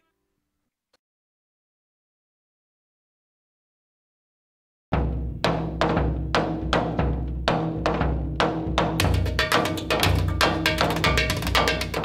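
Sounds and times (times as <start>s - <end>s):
drums: 4.9s - 12.0s.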